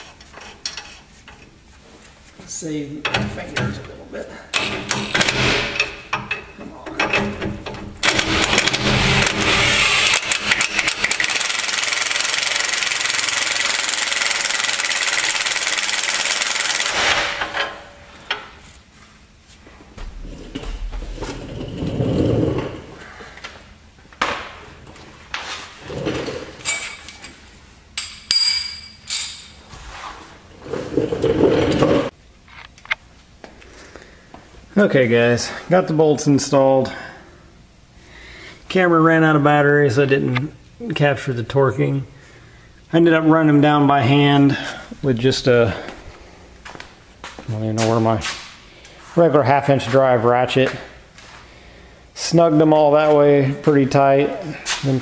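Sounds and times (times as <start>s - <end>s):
impact wrench hammering: 4.6s - 6.4s, 7.0s - 18.5s
tools clanking: 25.9s - 27.4s.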